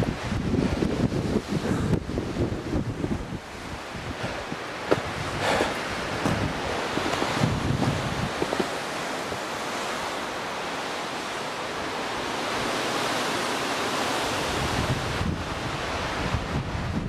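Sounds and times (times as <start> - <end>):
wind buffeting microphone: 0.0 - 17.0
wind rushing through trees: 0.0 - 17.0.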